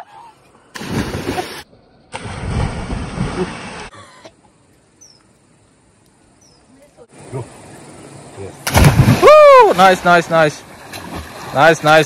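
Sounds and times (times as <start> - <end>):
splash into water: 0.8 - 3.9, 8.6 - 11.8.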